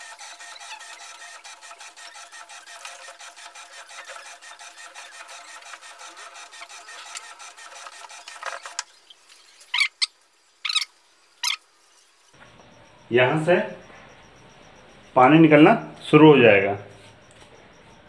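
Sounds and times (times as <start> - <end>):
washing machine churning: 0.0 - 8.9.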